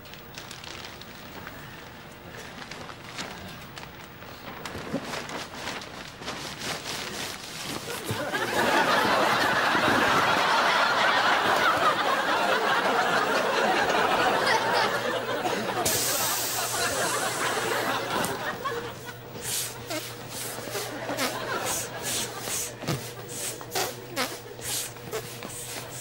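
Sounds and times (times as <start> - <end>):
plastic bag crinkling: 0.1 - 8.3
audience laughing: 7.8 - 26.0.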